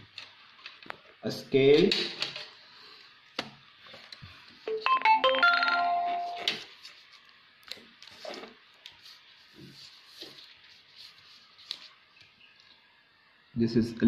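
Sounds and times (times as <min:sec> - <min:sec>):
phone alert tune: 0:04.7 - 0:06.5.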